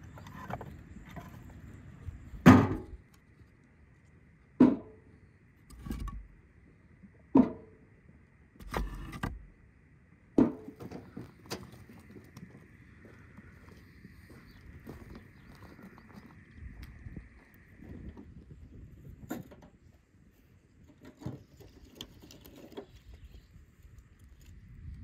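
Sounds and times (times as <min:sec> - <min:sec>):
firewood dropping into wheelbarrow: 0:10.4 - 0:11.9.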